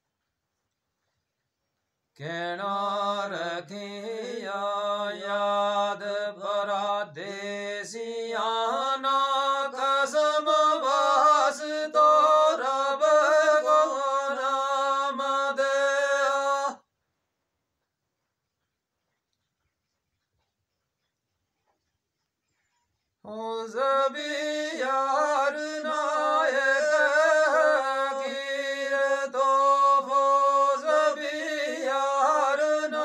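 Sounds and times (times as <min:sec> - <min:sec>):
man chanting: 0:02.2 - 0:16.8, 0:23.3 - 0:33.0.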